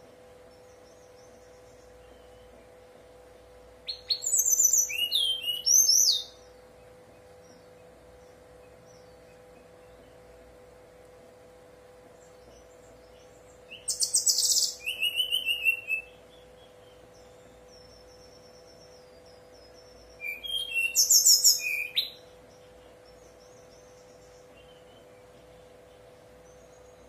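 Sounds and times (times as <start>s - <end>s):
faint steady hum: 0.0s - 27.0s
bird trilling song: 0.4s - 10.9s, 12.2s - 27.0s
thin whistled bird notes: 3.8s - 7.9s, 12.3s - 27.0s.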